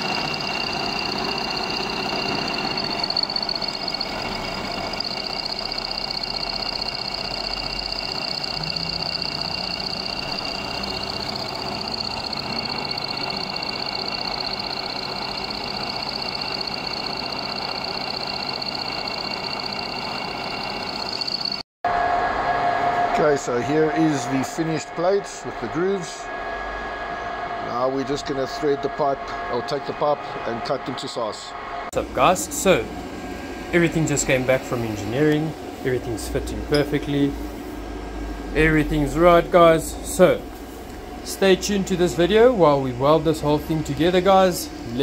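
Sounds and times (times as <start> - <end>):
milling machine cutting metal: 0.0 - 21.6.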